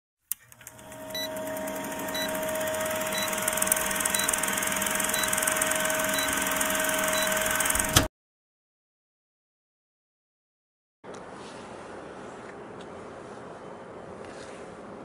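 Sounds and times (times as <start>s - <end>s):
film projector clatter: 0.3s - 8.1s
short high beeps: 5.0s - 7.5s.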